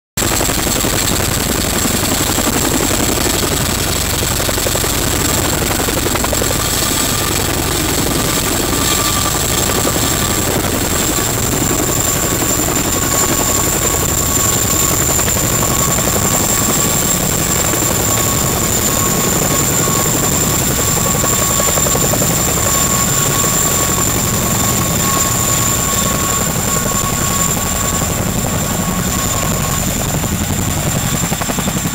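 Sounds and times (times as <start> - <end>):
helicopter rotor beat: 0.2 - 31.9
high turbine whine: 0.2 - 31.9.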